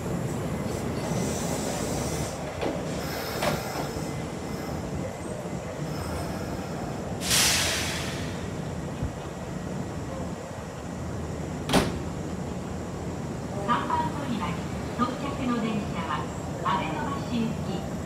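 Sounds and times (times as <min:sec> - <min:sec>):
train low rumble: 0:00.0 - 0:18.0
compressed-air hiss: 0:06.0 - 0:08.5.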